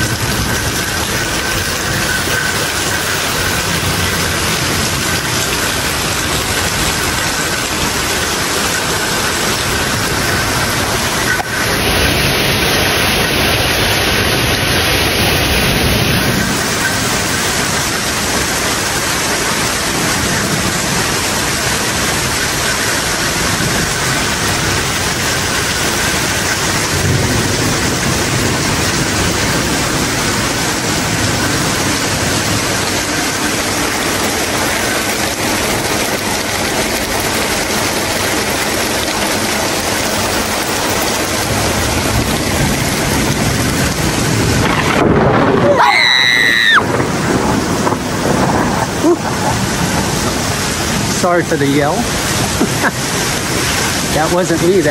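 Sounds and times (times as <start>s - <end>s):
heavy rain pouring: 0.0s - 54.9s
thunder rumbling: 0.0s - 54.9s
person yelling: 45.6s - 46.8s.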